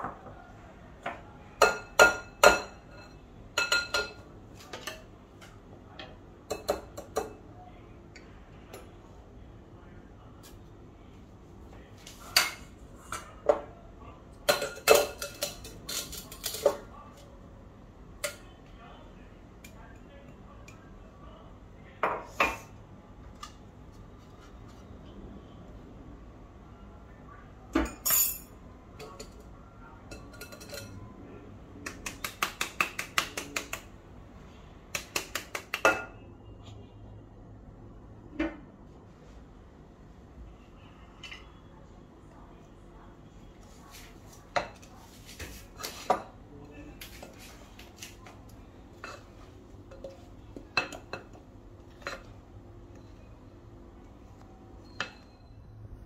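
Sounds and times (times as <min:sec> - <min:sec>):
utensils clinking against glass bowl: 0:01.6 - 0:05.1, 0:14.4 - 0:16.8, 0:27.8 - 0:29.4, 0:30.1 - 0:31.0, 0:54.8 - 0:55.6.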